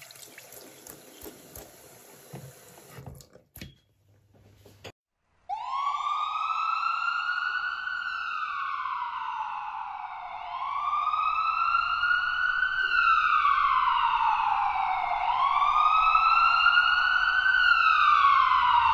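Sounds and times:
emergency vehicle siren wailing: 5.5 - 18.9.

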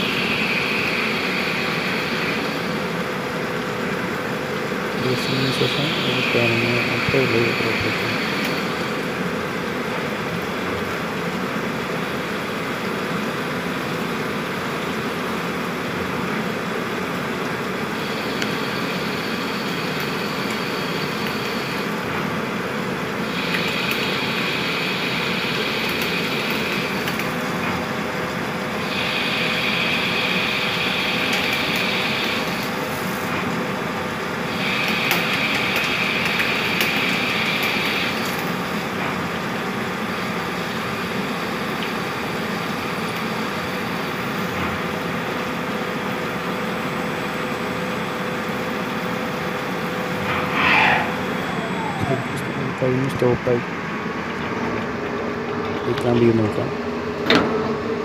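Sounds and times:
lathe and coolant noise: 0.0 - 58.0
high-pitched cutting sound: 50.1 - 53.6.

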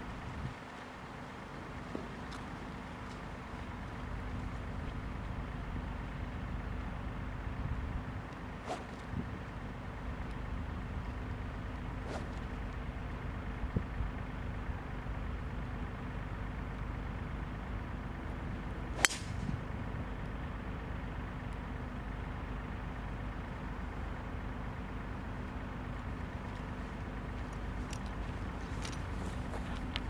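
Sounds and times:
low background rumble: 0.0 - 30.0
golf club striking ball: 8.6 - 9.0, 12.1 - 12.5, 19.0 - 19.4.

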